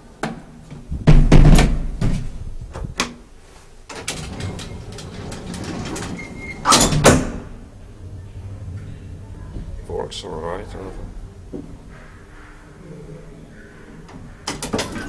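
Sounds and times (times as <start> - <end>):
elevator doors thudding: 3.9 - 12.8, 13.4 - 15.0.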